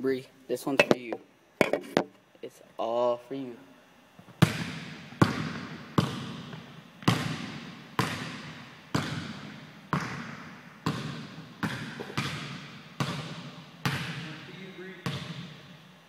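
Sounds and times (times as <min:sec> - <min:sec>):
basketball bouncing on wooden floor: 0:04.4 - 0:14.3, 0:15.0 - 0:15.6.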